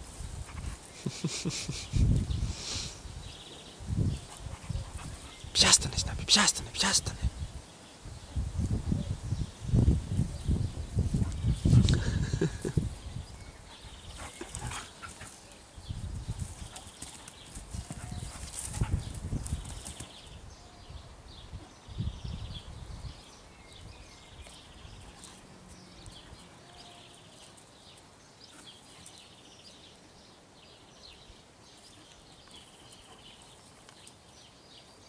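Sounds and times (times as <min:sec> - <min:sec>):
paws thudding on ground: 0:16.4 - 0:20.1.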